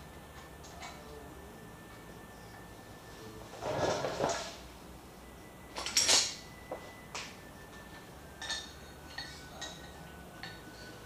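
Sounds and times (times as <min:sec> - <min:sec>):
metal tools and bolts clinking: 0:05.8 - 0:06.4, 0:08.4 - 0:10.9.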